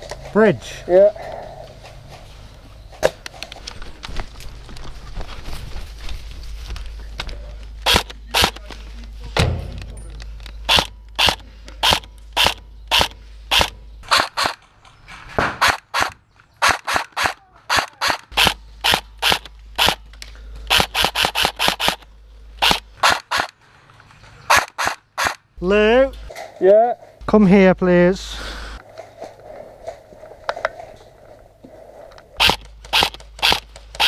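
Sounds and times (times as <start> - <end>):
airsoft rifle shots: 7.8 - 8.7, 10.7 - 14.6, 15.3 - 20.0, 20.7 - 22.0, 22.6 - 23.6, 24.5 - 25.5, 32.4 - 34.0.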